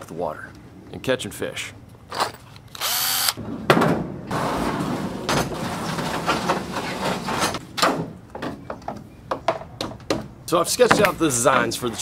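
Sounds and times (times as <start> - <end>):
impact driver whirring: 2.8 - 3.4.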